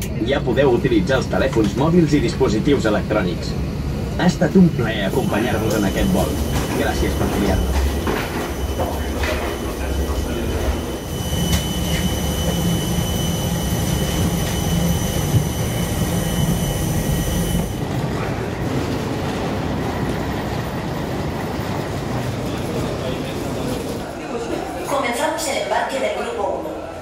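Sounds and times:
high machinery whine: 0.1s - 17.8s.

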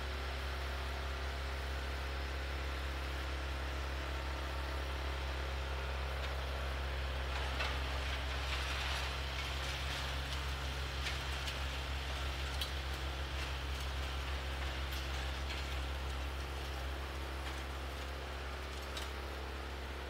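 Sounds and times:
tractor engine hum: 0.1s - 20.0s
snowblower throwing snow: 7.1s - 20.0s.

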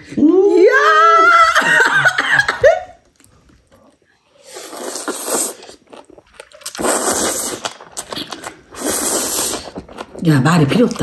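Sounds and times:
close chewing: 5.5s - 11.0s.

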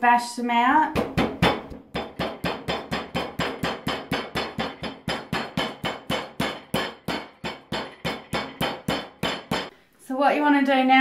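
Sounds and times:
meat mallet pounding on cutting board: 1.0s - 9.7s.

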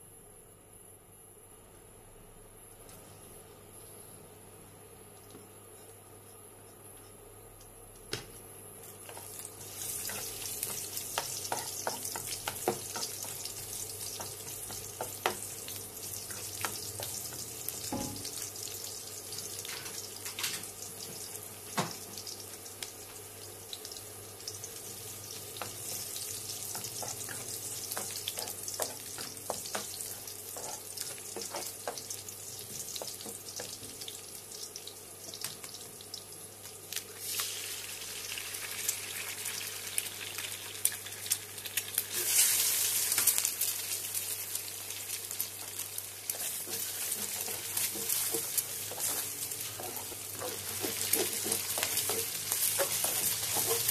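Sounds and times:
garlic sizzling in hot oil: 8.8s - 53.9s
spatula scraping a pan: 46.3s - 53.9s.

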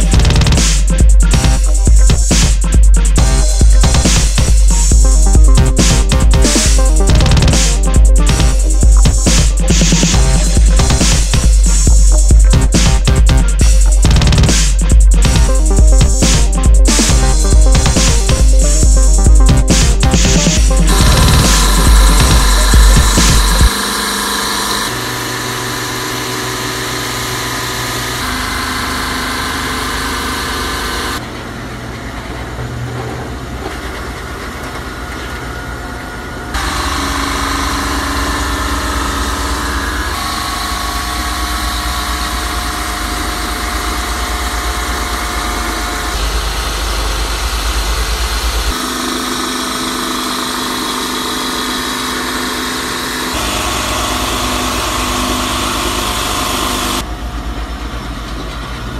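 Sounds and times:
sanding hiss: 0.0s - 24.3s
drum sander motor hum: 0.0s - 58.9s.

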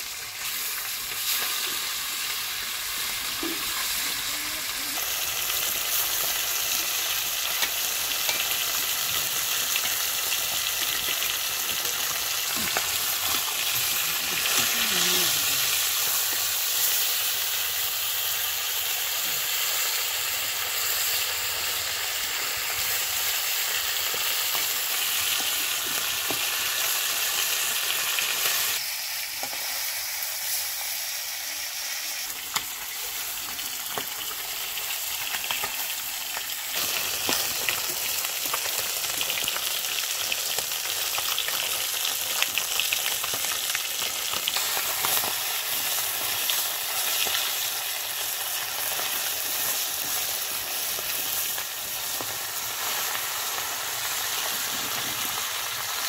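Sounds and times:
fish sizzling in oil: 0.0s - 56.0s.

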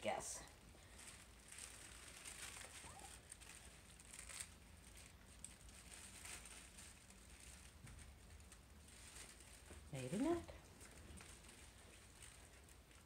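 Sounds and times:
puppies scuffling on a tile floor: 0.9s - 13.0s.

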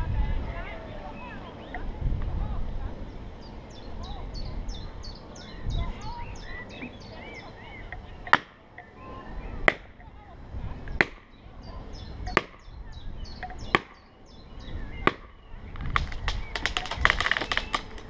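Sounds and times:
axe striking wood: 8.3s - 8.6s, 9.7s - 9.9s, 11.0s - 11.3s, 12.3s - 12.6s, 13.7s - 14.0s, 15.0s - 15.4s
rapid sharp cracking: 15.8s - 18.0s.

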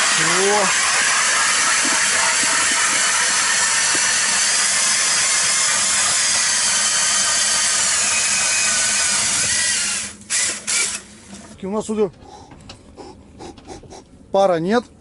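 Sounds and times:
auger blades grinding ice: 0.0s - 11.0s
power drill motor: 0.0s - 11.5s.

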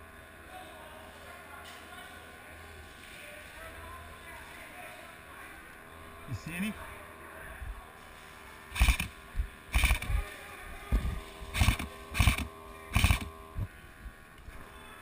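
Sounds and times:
airsoft rifle bursts: 8.7s - 10.3s, 11.5s - 13.7s.

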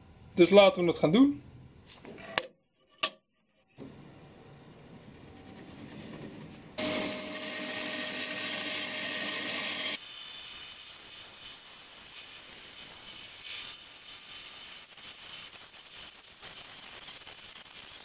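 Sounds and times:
bandsaw cutting wood: 6.8s - 10.0s.

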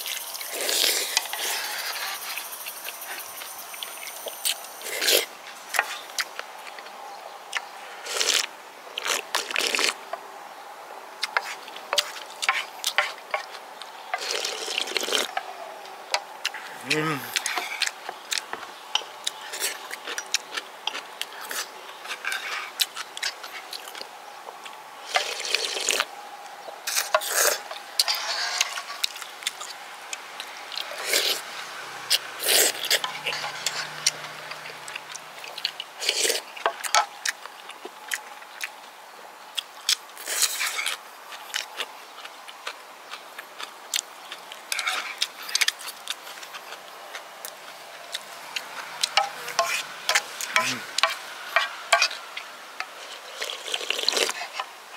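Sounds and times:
slurping broth: 0.4s - 3.4s, 8.0s - 10.0s, 14.2s - 15.4s, 25.1s - 26.1s, 32.1s - 34.8s, 53.0s - 54.6s
wet chewing and lip-smacking: 39.5s - 51.2s.

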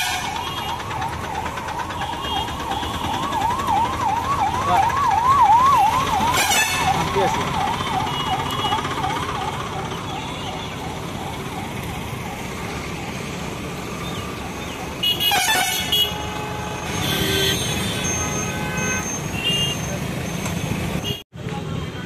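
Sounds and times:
vehicle horn blasts: 0.0s - 0.7s, 6.3s - 6.9s, 15.0s - 19.9s
emergency siren wailing: 0.0s - 19.3s
road traffic noise: 0.0s - 22.0s.

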